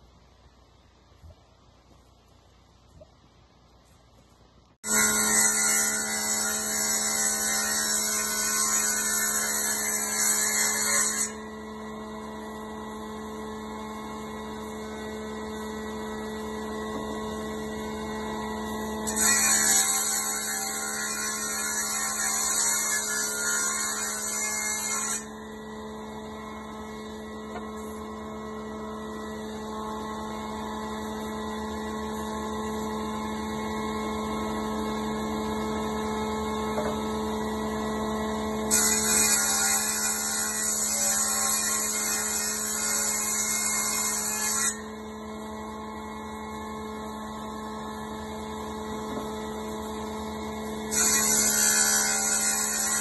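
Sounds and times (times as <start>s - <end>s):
cutter head whining through wood: 4.8s - 53.0s.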